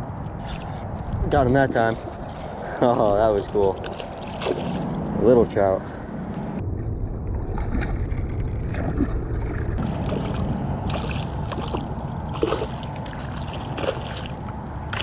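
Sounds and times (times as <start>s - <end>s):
steady low rumble: 0.0s - 15.0s
fish splashing in water: 3.8s - 5.0s, 8.8s - 15.0s.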